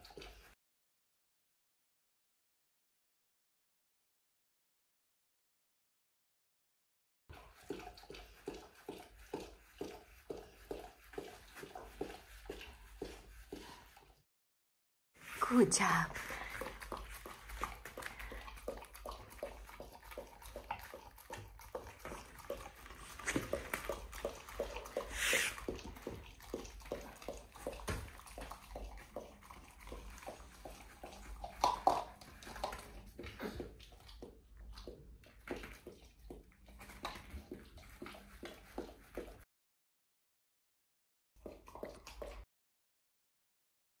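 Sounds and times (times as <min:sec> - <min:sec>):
dog licking wet laps: 0:00.0 - 0:00.6, 0:07.3 - 0:14.2, 0:15.2 - 0:39.4, 0:41.4 - 0:42.4.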